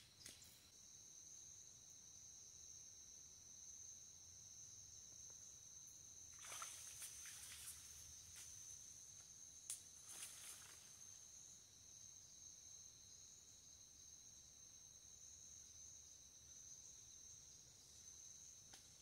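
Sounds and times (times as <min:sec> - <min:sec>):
leaves rustling: 0:06.4 - 0:09.0, 0:09.7 - 0:11.2.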